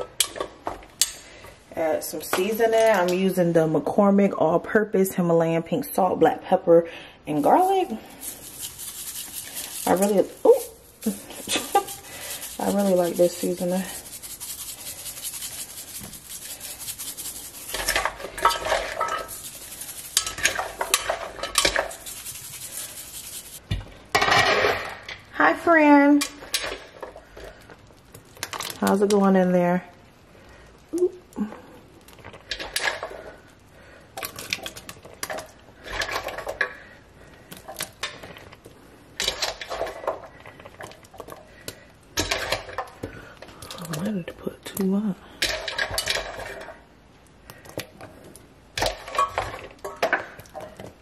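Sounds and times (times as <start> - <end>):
seasoning shaken from bottle: 7.3 - 23.6
vegetables rattling in metal pot: 7.3 - 25.2, 32.3 - 33.4, 34.2 - 37.0, 39.2 - 46.8, 48.7 - 51.0.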